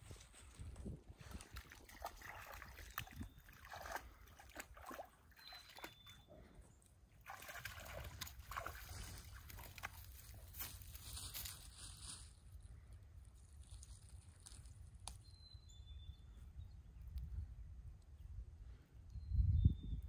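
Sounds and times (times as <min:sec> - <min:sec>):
dog paws splashing in water: 0:01.2 - 0:06.2, 0:07.2 - 0:11.7.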